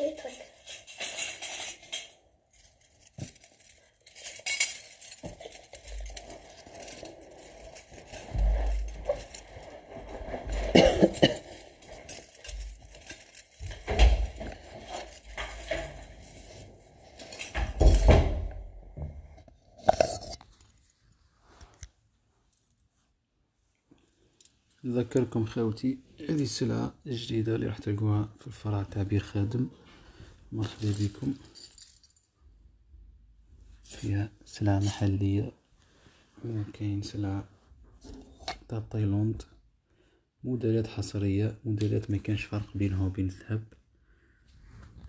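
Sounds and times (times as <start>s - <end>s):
jewellery clinking and jingling: 0.0s - 18.7s, 30.6s - 32.5s.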